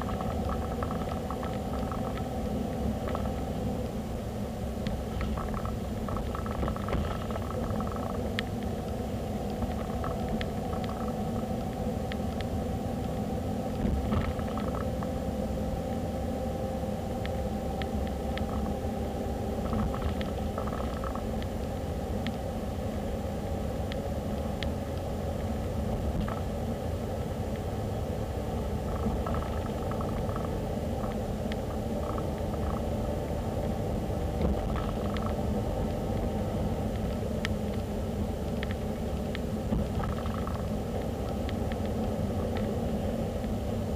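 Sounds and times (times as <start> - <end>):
faint ticks and rattles: 0.0 - 4.0, 4.8 - 13.2, 13.8 - 15.1, 19.6 - 22.4, 28.8 - 43.6
car engine and tyre rumble: 0.0 - 43.9.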